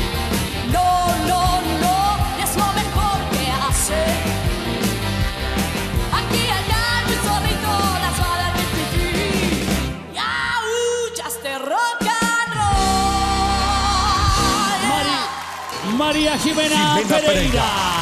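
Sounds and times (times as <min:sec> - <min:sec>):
live rock band with electric guitar: 0:00.0 - 0:10.6, 0:11.8 - 0:18.0
woman singing: 0:00.7 - 0:04.5, 0:06.1 - 0:15.4.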